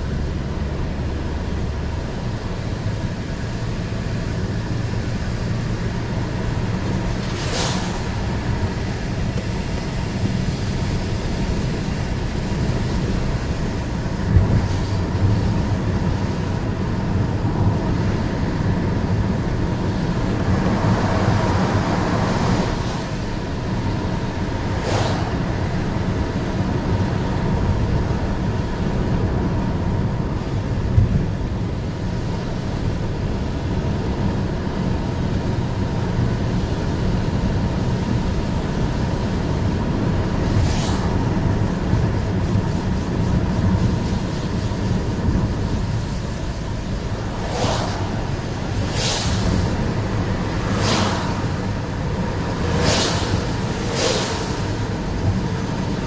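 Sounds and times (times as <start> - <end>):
car road noise on wet road: 0.0 - 56.0
short hiss: 7.2 - 8.2, 47.4 - 49.8, 52.8 - 54.7.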